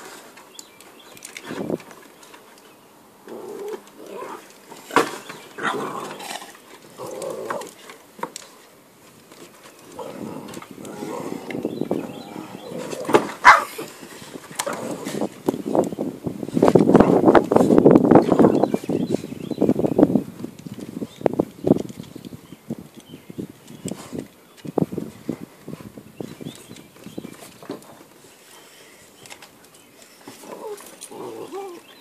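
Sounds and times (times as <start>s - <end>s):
dogs growling playfully: 5.6s - 7.9s, 9.9s - 13.3s, 30.4s - 32.0s
dog yapping: 13.4s - 13.7s.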